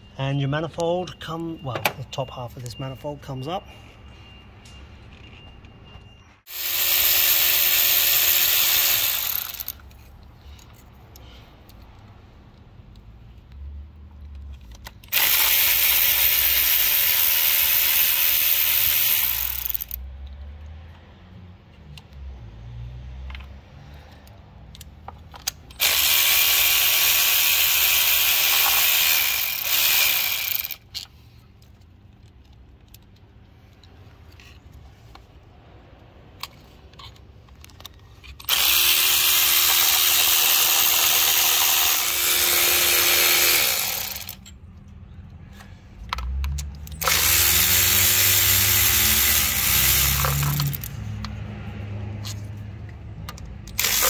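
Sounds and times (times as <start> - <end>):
power tool whirring: 6.5 - 10.0, 15.0 - 20.0, 25.7 - 30.8, 38.4 - 44.4, 46.9 - 51.0, 53.7 - 54.0.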